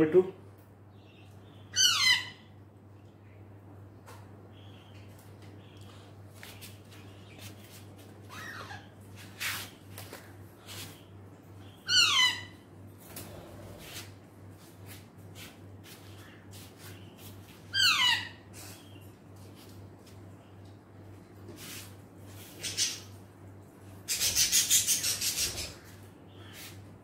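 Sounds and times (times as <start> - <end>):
parakeet harsh calls: 1.6 - 2.5, 8.3 - 8.9, 11.6 - 12.6, 17.7 - 18.5.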